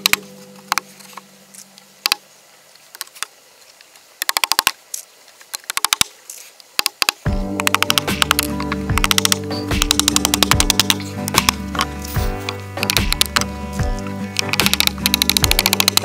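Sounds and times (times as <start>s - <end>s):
hammer tapping nails into wood: 6.8s - 11.9s, 12.8s - 16.0s.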